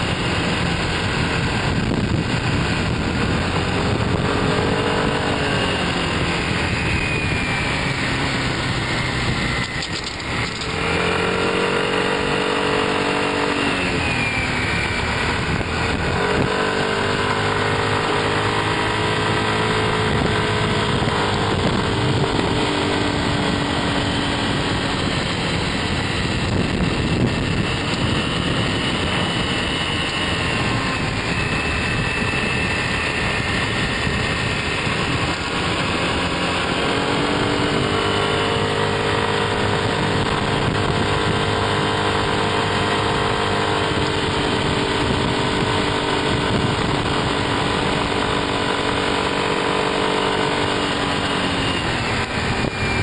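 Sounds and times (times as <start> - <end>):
scooter engine running: 0.0 - 53.0
wind and road noise: 0.0 - 53.0.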